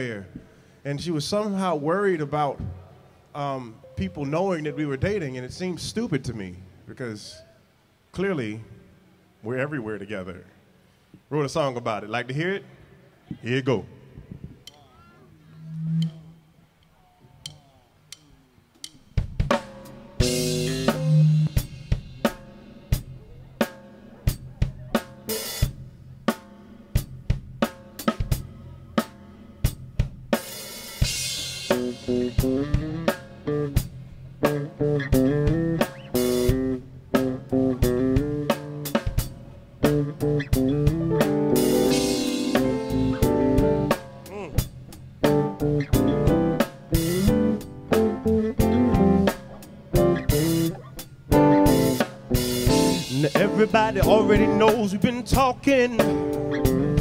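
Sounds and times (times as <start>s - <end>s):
electric guitar chords: 3.7s - 5.6s, 20.0s - 22.9s, 31.2s - 57.0s
bass line: 15.4s - 16.7s, 20.2s - 23.5s, 31.3s - 57.0s
drum kit beat: 17.4s - 57.0s.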